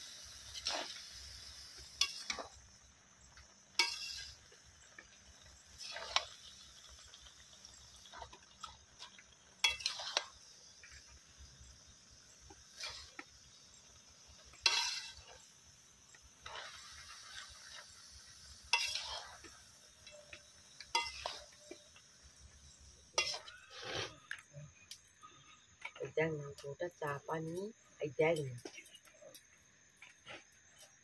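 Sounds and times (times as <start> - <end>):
faint steady hiss: 0.0 - 31.0
metal spatula scraping wok: 0.4 - 22.0, 22.6 - 24.8.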